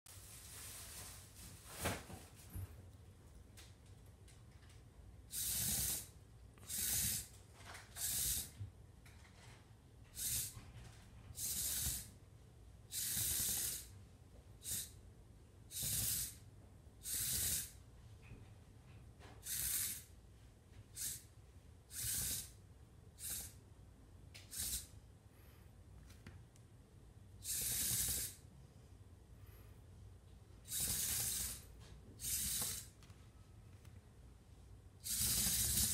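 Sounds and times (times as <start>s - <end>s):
robot car motors whirring: 5.3s - 6.1s, 10.2s - 10.5s, 30.7s - 31.6s, 32.2s - 32.9s, 35.0s - 35.9s.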